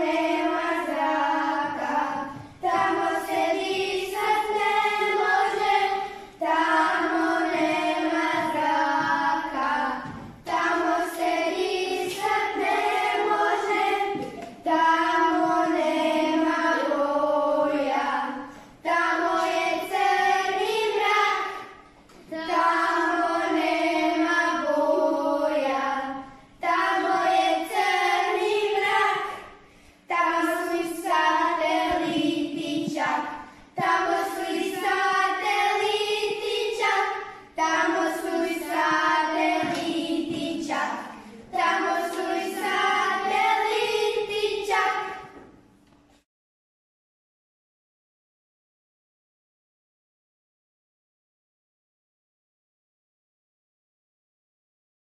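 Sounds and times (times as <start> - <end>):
children singing: 0.0 - 45.6.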